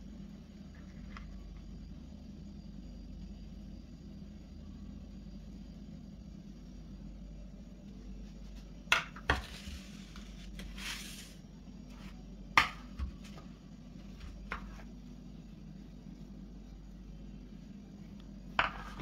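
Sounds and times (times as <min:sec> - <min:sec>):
rustling scrape: 0:09.4 - 0:12.2.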